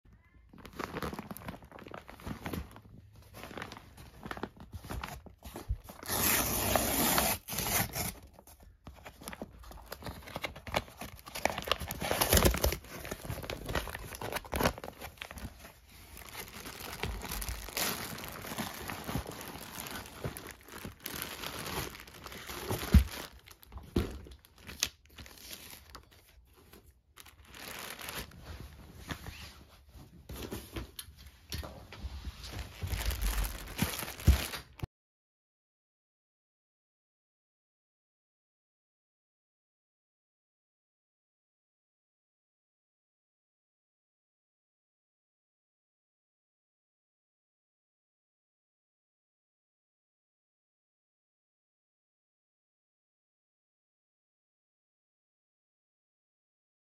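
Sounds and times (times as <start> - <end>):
paper and plastic rustling: 0.5 - 6.2, 8.0 - 34.9
paper tearing and crumpling: 6.0 - 8.2, 10.4 - 15.5, 16.2 - 23.6, 27.2 - 28.4, 32.6 - 34.8.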